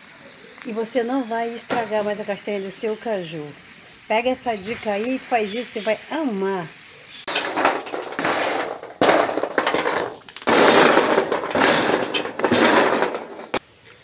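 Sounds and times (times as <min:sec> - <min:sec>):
nut shells rattling on metal: 0:07.3 - 0:13.6.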